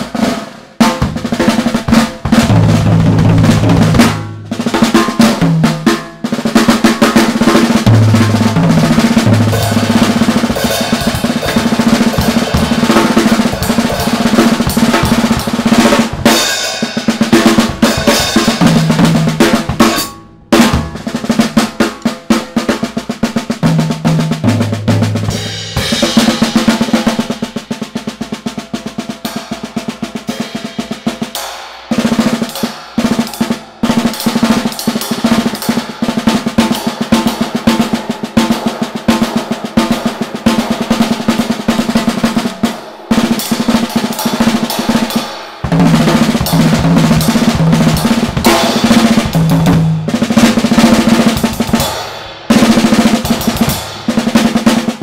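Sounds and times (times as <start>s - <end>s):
tom fills: 0.0s - 29.1s
cymbals: 0.0s - 55.0s
snare drum strokes: 0.0s - 55.0s
bass drum: 0.8s - 6.1s, 7.0s - 22.5s, 43.2s - 55.0s.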